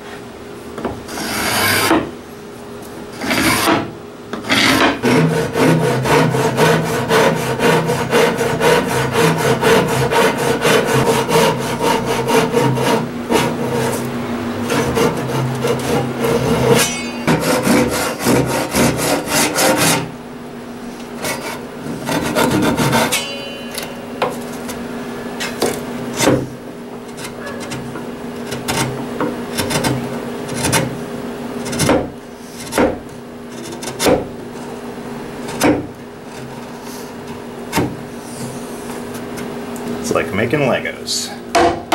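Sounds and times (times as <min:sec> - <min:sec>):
chisel scraping wood: 0:01.1 - 0:02.1, 0:03.2 - 0:20.1, 0:21.2 - 0:24.7, 0:27.1 - 0:30.9, 0:31.6 - 0:34.7
hand saw cutting wood: 0:01.1 - 0:02.1, 0:03.2 - 0:20.1, 0:21.2 - 0:23.6, 0:27.1 - 0:30.9, 0:31.6 - 0:34.3.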